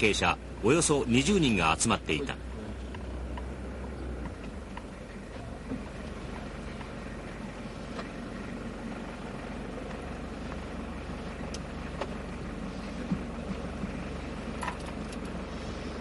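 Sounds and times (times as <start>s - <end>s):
car engine idling: 0.0s - 16.0s.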